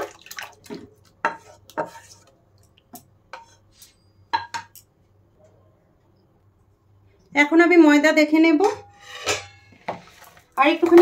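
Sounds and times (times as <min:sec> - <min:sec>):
spatula scraping a cooking pan: 0:01.2 - 0:02.3, 0:03.3 - 0:04.0, 0:08.8 - 0:10.4.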